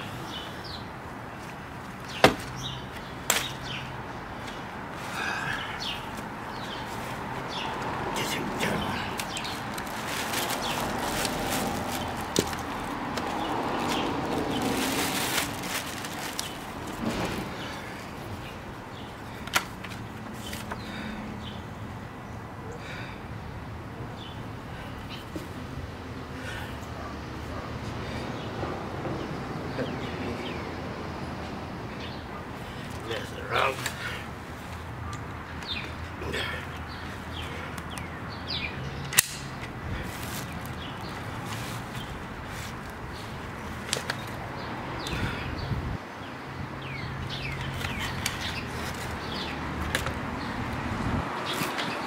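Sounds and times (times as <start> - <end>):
plastic and paper rustling: 9.1 - 17.5, 40.1 - 44.4, 47.6 - 49.2
sharp click: 39.1 - 39.7.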